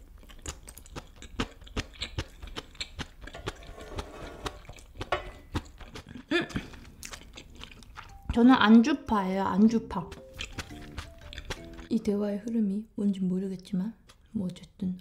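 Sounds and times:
chewing and lip smacks: 0.0s - 3.7s, 4.6s - 8.4s, 10.0s - 12.6s
wooden spoon scraping a pan: 3.4s - 5.5s.

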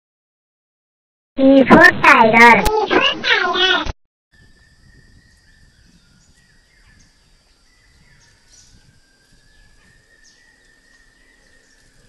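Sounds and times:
birds chirping: 4.4s - 12.0s.

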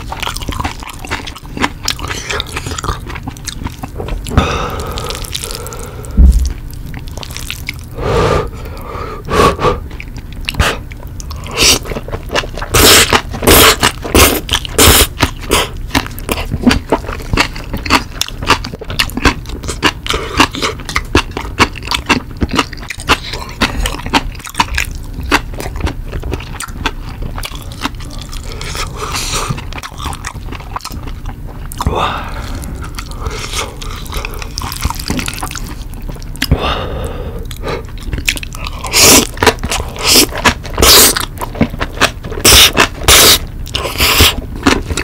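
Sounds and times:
wet chewing: 0.0s - 8.0s, 9.5s - 45.0s
noodles slurped: 11.4s - 16.8s, 38.2s - 45.0s.

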